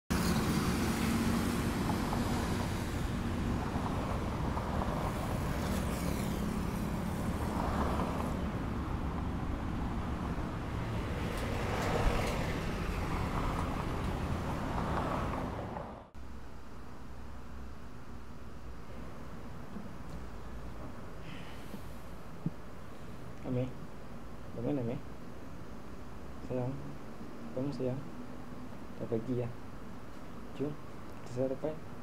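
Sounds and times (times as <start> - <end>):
vehicles passing: 0.1 - 16.2
road traffic: 0.1 - 32.0.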